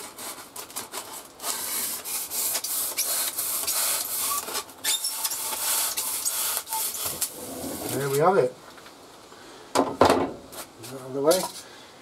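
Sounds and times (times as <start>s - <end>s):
hand saw cutting foam: 0.0s - 8.1s.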